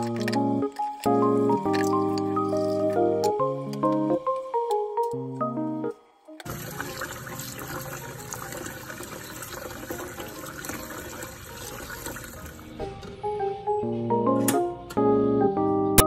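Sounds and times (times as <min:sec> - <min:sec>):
tap water splashing into pot: 0:06.4 - 0:12.5.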